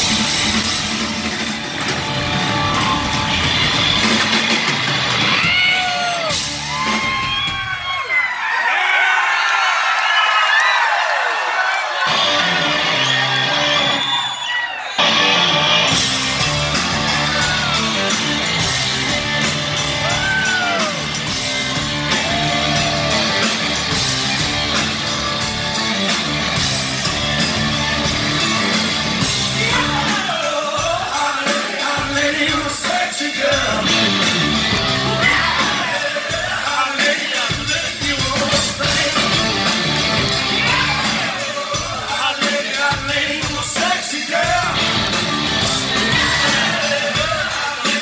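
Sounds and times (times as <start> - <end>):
rock band playing live: 0.0 - 8.0, 12.0 - 14.3, 15.0 - 48.0
man singing: 29.5 - 34.2, 35.1 - 39.8, 40.6 - 45.0, 45.9 - 48.0.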